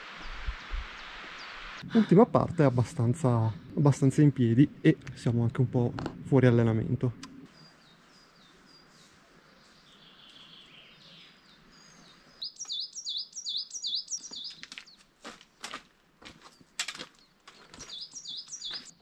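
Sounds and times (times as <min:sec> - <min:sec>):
songbird singing: 0:03.2 - 0:15.1, 0:16.5 - 0:19.0.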